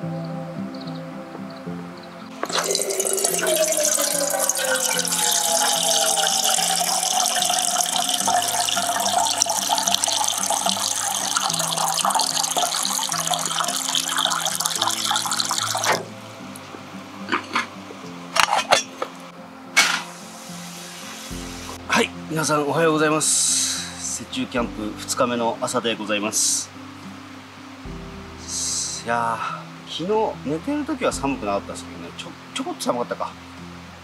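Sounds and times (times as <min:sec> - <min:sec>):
background music: 0:00.0 - 0:34.0
water pouring into kettle: 0:02.4 - 0:16.1.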